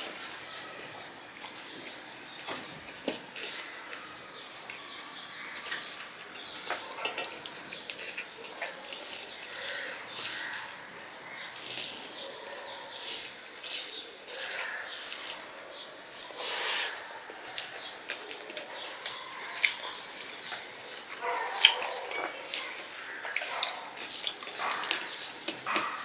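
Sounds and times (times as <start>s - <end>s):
wet squelching of rice mixed by hand: 7.2s - 26.0s.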